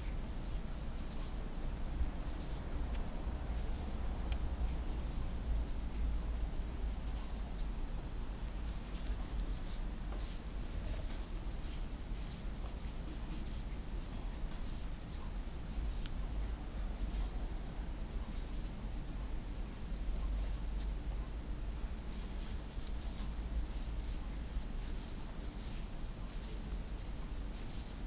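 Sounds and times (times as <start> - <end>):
steady low hum: 0.0 - 28.0
crochet hook scratching yarn: 0.1 - 5.2, 8.3 - 17.3, 22.1 - 28.0.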